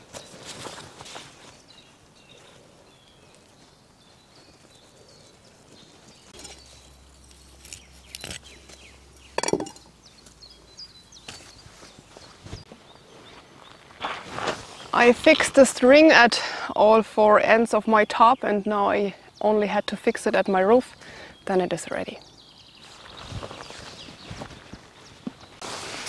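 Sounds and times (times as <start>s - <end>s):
knife knocking on wooden plank: 9.4s - 9.8s
tarp fabric rustling: 22.8s - 24.7s, 25.6s - 26.0s.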